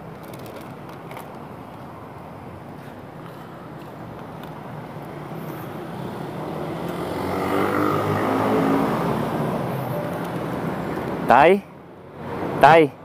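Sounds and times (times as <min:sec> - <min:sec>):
street traffic noise: 0:00.0 - 0:13.0
vehicle engine approaching: 0:04.6 - 0:11.3.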